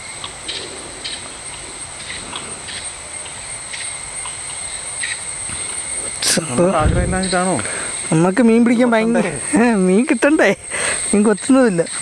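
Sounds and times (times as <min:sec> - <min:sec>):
short insect chirps: 0:00.0 - 0:08.6
insects droning: 0:00.0 - 0:12.0.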